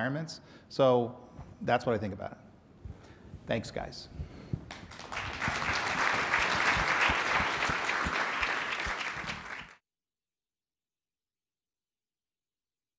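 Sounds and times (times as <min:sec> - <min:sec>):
audience applauding: 0:04.7 - 0:09.8.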